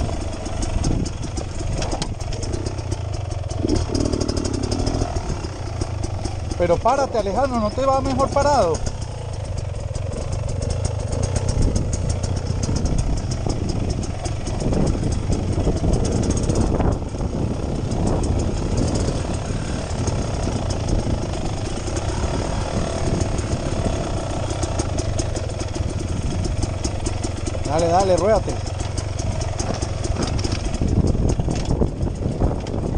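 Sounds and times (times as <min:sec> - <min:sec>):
dirt bike engine chugging: 0:00.0 - 0:32.9.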